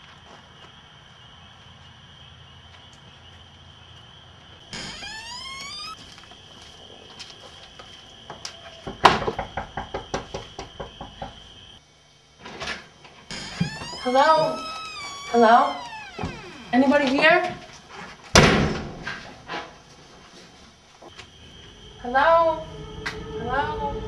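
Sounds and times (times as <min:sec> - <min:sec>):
door creaking open: 0:04.8 - 0:06.0, 0:13.3 - 0:17.9.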